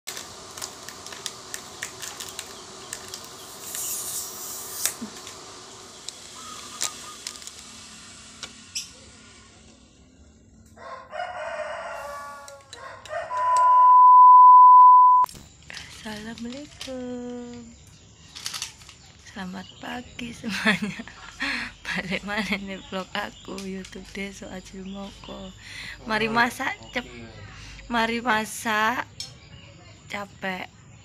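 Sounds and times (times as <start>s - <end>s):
rooster crowing: 10.7s - 13.9s
loud test-tone beep: 13.4s - 15.3s.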